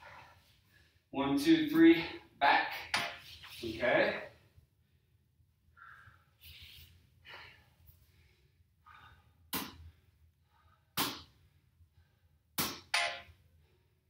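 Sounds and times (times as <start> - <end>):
ball slapping into hands: 9.5 - 9.9, 11.0 - 11.3, 12.6 - 13.2.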